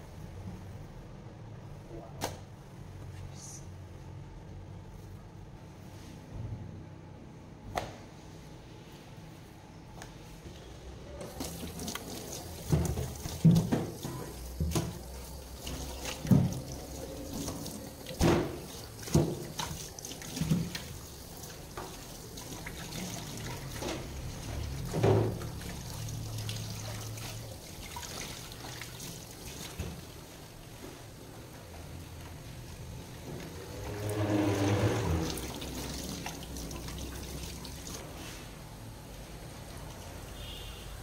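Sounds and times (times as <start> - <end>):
water splashing in a sink: 11.2 - 30.5, 32.8 - 38.2.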